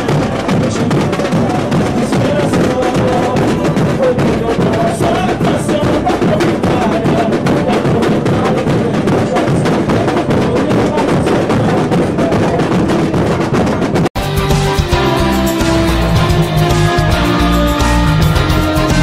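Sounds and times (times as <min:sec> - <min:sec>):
samba drums playing: 0:00.0 - 0:19.0.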